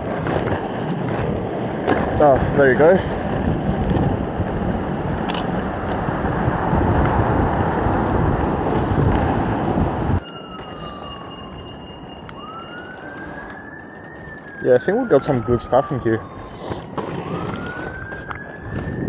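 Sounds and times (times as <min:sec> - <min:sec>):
wind on microphone: 0:00.0 - 0:10.2, 0:15.4 - 0:19.0
skate wheels rolling on pavement: 0:00.0 - 0:19.0
siren wailing: 0:09.8 - 0:19.0.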